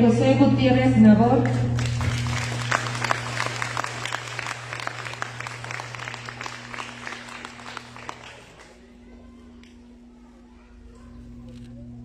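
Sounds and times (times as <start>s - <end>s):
steady low hum: 0.0s - 12.0s
audience applauding: 1.5s - 9.0s.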